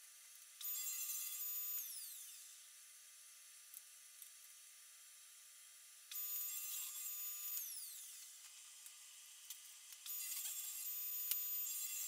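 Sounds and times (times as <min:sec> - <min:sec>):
table saw whine: 0:00.6 - 0:02.8, 0:06.1 - 0:08.4, 0:10.1 - 0:12.0.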